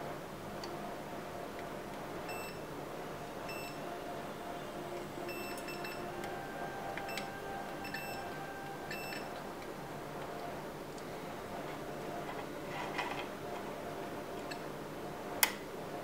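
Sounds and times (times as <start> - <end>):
multimeter beeper chirps: 2.3 - 2.6, 3.5 - 3.9, 5.2 - 6.2, 7.1 - 9.4.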